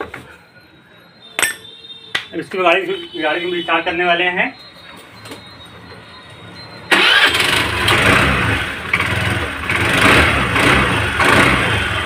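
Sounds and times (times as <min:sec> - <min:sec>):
scooter engine starting and running: 0:06.8 - 0:12.0.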